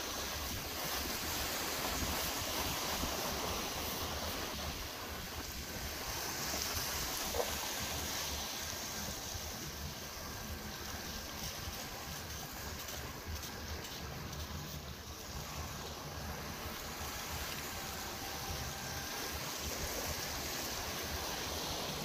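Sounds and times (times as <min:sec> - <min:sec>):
sea water washing against rocks: 0:00.0 - 0:22.0.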